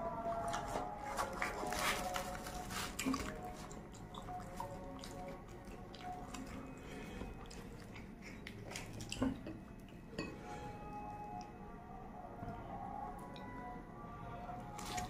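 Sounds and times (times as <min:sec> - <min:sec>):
fried bread crackling and tearing: 0:00.5 - 0:03.7, 0:14.7 - 0:15.0
wet squishes: 0:00.5 - 0:09.5, 0:14.7 - 0:15.0.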